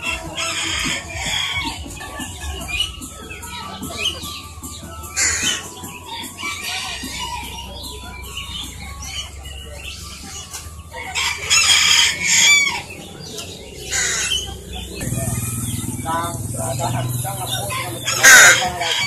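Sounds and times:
caged birds chirping: 0:00.0 - 0:19.0
rooster crowing: 0:11.0 - 0:12.8, 0:18.1 - 0:19.0.

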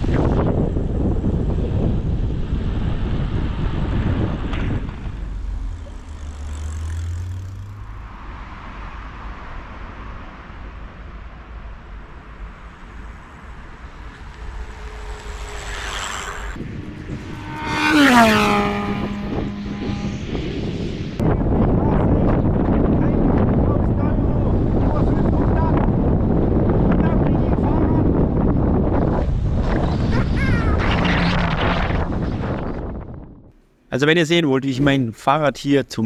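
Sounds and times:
outdoor ambience: 0:00.0 - 0:23.1
rushing pass-by with whine: 0:00.0 - 0:33.4
wind rumbling on microphone: 0:00.0 - 0:33.5.

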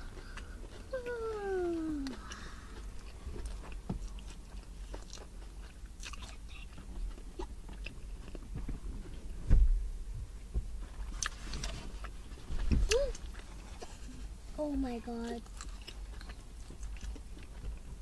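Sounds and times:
chewing and biting food: 0:00.0 - 0:09.2, 0:11.0 - 0:14.4, 0:15.4 - 0:18.0.

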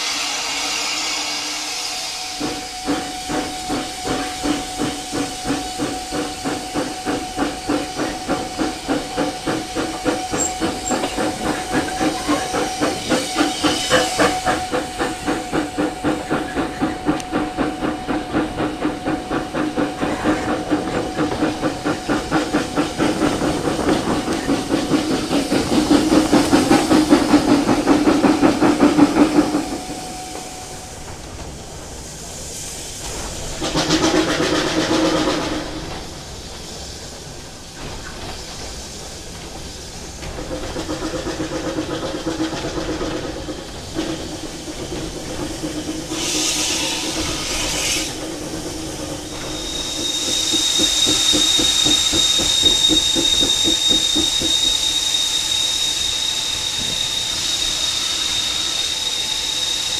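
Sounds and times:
steam hiss: 0:00.0 - 0:59.9
steam train exhaust beats: 0:00.0 - 0:59.9.

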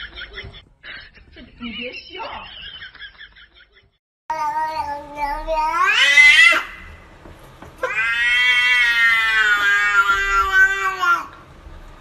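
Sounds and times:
cats yowling: 0:04.5 - 0:06.8, 0:07.8 - 0:11.4.

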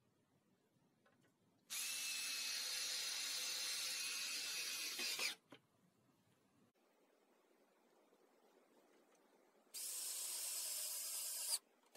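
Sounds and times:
cordless drill whining: 0:01.7 - 0:05.4, 0:09.8 - 0:11.6.

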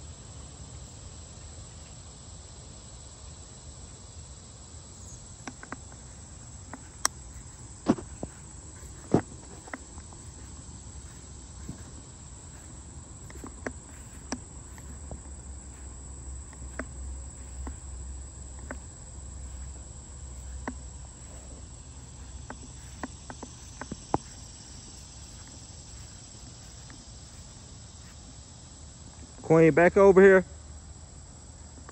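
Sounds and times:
high-pitched insect chorus: 0:00.0 - 0:31.9
sharp clicks: 0:06.7 - 0:07.6.

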